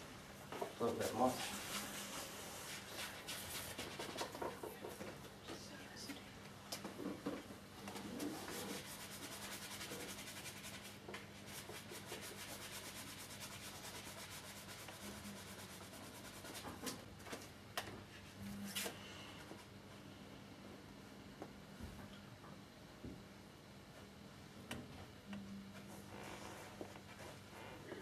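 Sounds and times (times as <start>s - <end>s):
brush scrubbing on canvas: 0.9s - 4.2s, 7.9s - 16.9s.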